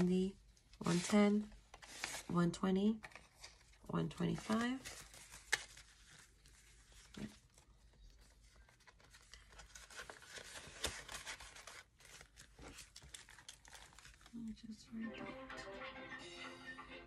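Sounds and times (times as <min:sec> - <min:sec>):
paper money rustling: 0:03.1 - 0:14.3.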